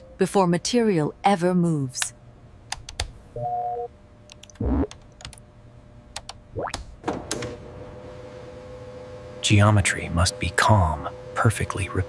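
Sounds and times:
electronic hum: 3.4 - 5.2.

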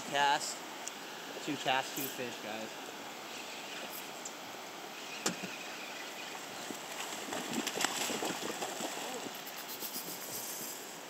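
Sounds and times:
river water rushing: 0.0 - 9.8
fish splashing at the surface: 6.8 - 10.3.

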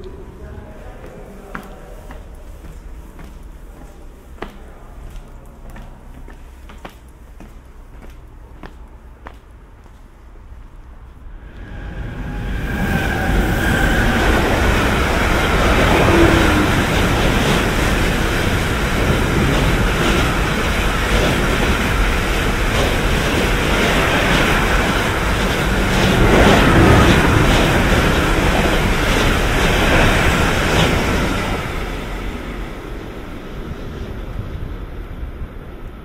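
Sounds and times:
train wheels rushing on rails: 11.0 - 36.0.

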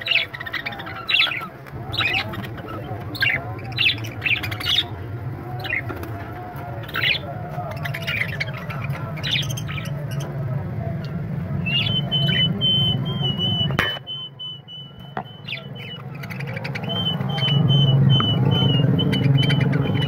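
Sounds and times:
caged birds chirping and squawking: 0.0 - 20.0
thin steady whistle: 11.6 - 15.8, 16.9 - 19.9.

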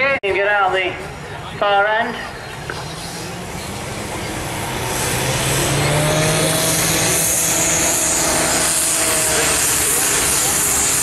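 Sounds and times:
diesel engine revving: 2.5 - 11.0.

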